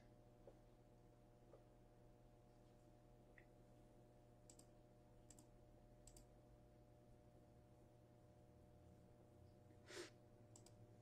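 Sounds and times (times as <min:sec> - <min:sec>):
faint electrical hum: 0:00.0 - 0:11.0
computer mouse double-click: 0:04.5 - 0:04.7, 0:05.3 - 0:06.3, 0:10.5 - 0:10.8.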